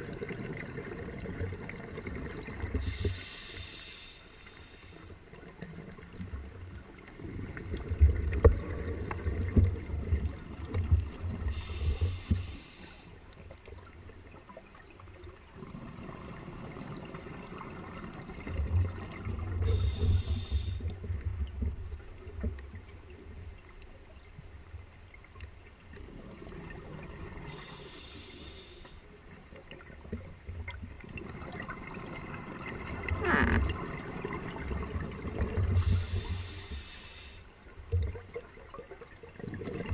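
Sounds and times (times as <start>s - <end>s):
regulator inhale hisses: 2.8s - 5.1s, 11.5s - 13.2s, 19.6s - 20.9s, 27.5s - 29.1s, 35.7s - 37.5s.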